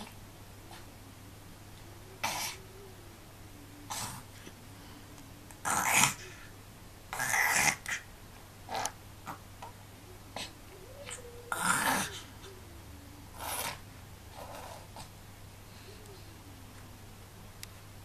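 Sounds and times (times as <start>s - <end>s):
baby soft vocal murmur: 1.8s - 5.0s, 5.6s - 8.1s, 10.1s - 15.1s.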